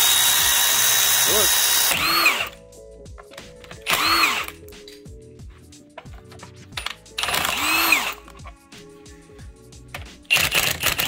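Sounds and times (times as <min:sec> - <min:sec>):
impact wrench motor winding: 0:00.0 - 0:02.6, 0:03.8 - 0:04.6, 0:06.8 - 0:08.4, 0:10.3 - 0:11.0.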